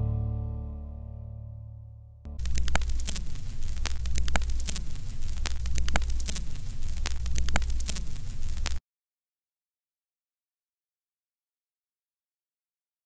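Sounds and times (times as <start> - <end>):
crackling clicks: 2.3 - 8.8
electrical hum and static: 2.3 - 8.8.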